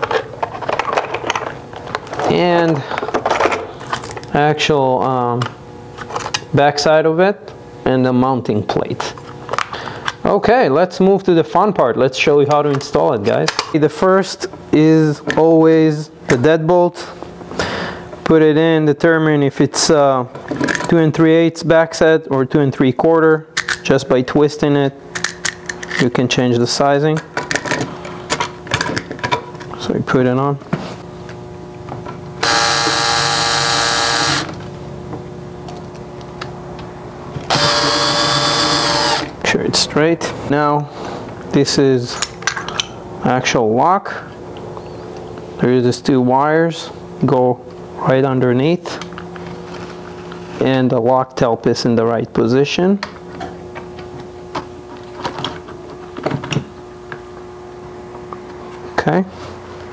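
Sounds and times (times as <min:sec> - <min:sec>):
faint steady hum: 0:00.0 - 0:59.9
cordless drill driving screws: 0:32.4 - 0:34.6, 0:37.5 - 0:39.3.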